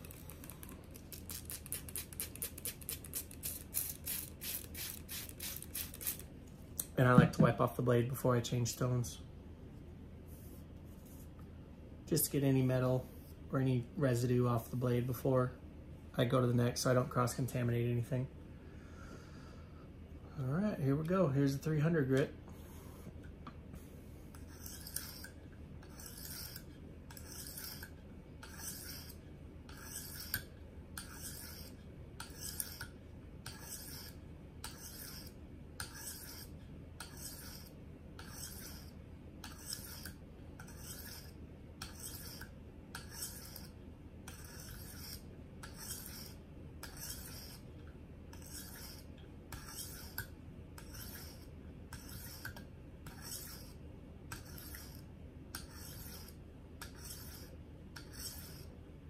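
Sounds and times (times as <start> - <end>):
sharpening stone rasping on knife: 1.2 - 6.2, 24.3 - 47.7, 48.3 - 58.7.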